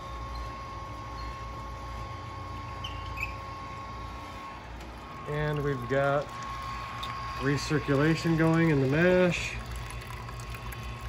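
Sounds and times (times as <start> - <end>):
pump humming and whining: 0.0 - 11.0.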